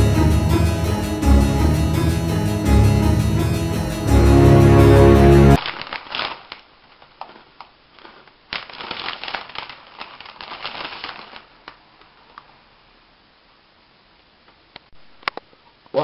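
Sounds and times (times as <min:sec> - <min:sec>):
plastic wrapper crinkling: 0:05.6 - 0:12.6.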